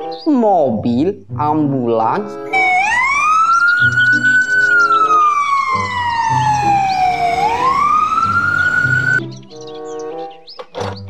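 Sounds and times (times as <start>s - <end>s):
ambulance siren wailing: 2.5s - 9.2s.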